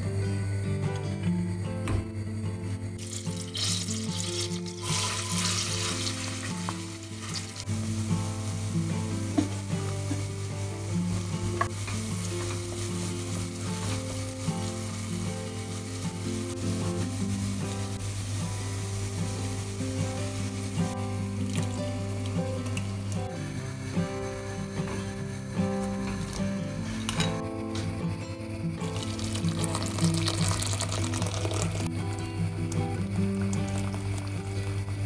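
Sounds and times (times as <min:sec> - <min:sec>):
onion sizzling in butter: 0:03.0 - 0:27.7, 0:28.4 - 0:35.0
wooden spoon stirring pot: 0:08.7 - 0:23.2, 0:28.8 - 0:31.9.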